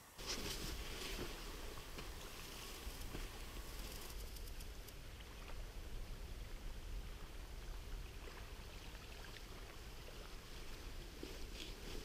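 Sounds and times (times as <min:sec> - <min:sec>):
even hiss: 0:00.0 - 0:05.0
constant low rumble: 0:00.0 - 0:12.0
faint scattered ticks: 0:02.0 - 0:05.6.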